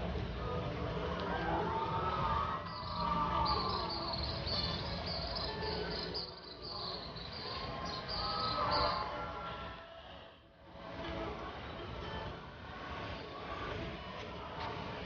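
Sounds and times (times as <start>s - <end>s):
insect chirping: 2.7s - 9.0s.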